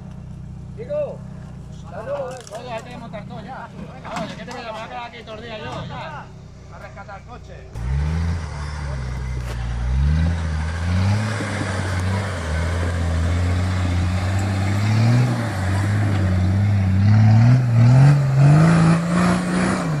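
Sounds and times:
car engine revving under load: 7.7 - 20.0.

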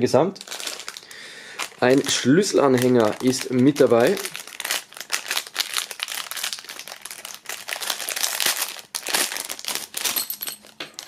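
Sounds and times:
plastic bag crinkling: 0.4 - 11.0.

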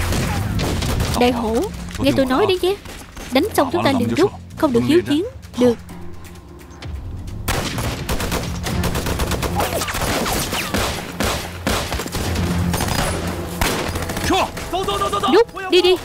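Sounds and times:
rapid rifle fire: 7.5 - 15.1.

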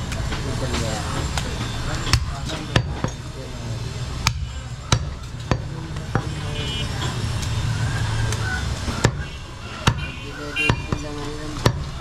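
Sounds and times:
cleaver chopping meat on wood: 2.1 - 3.2, 4.2 - 6.4, 8.3 - 12.0.

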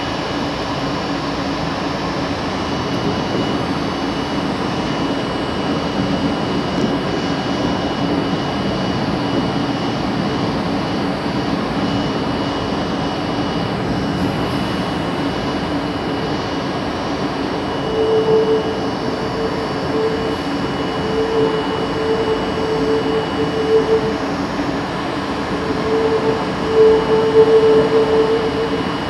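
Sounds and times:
train wheels rumbling on rail: 0.0 - 29.0
low hum: 15.0 - 29.0
higher tone: 15.9 - 29.0.

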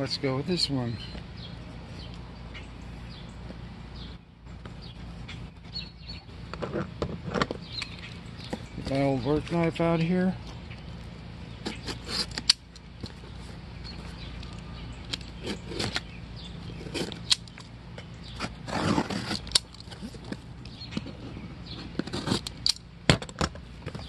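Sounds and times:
knife cutting cardboard box: 18.4 - 20.1, 21.8 - 22.7.

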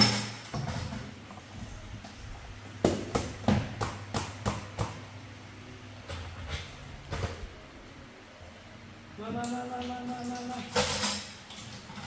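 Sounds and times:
sharp knocks of hard objects: 2.8 - 5.0.

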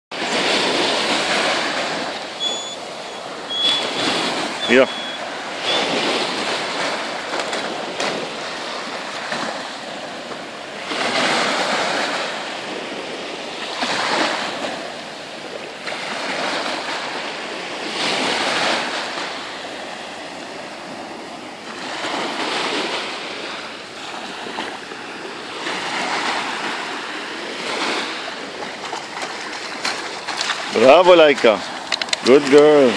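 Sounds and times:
small waves breaking on shore: 0.1 - 32.9.

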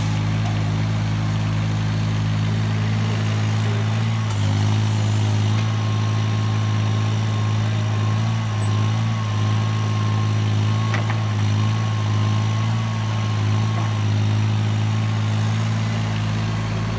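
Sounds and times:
excavator diesel engine running: 0.0 - 16.9.

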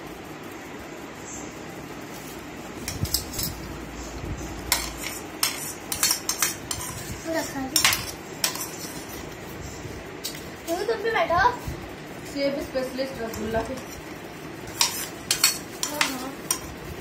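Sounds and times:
metal spoon clinking against bowl: 4.7 - 7.0, 7.7 - 8.8, 14.8 - 16.7.

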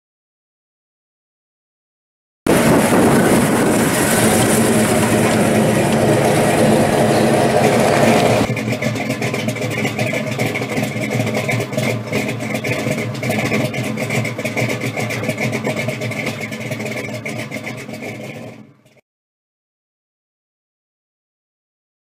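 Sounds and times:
car engine running: 2.5 - 19.0.

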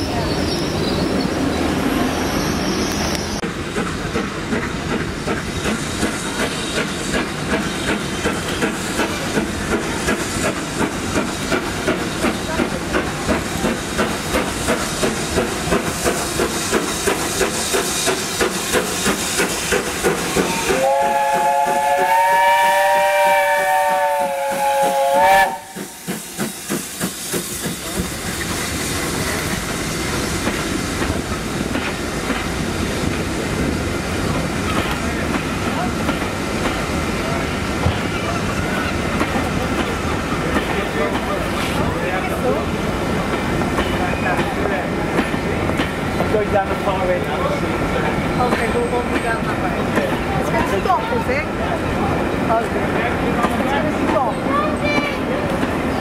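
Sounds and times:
steam hissing: 0.0 - 56.0
steam locomotive exhaust beats: 2.1 - 56.0
coaches clickety-clack: 3.7 - 20.5, 38.8 - 42.6, 43.3 - 50.8, 53.3 - 55.9
steam whistle blast: 20.3 - 26.3.

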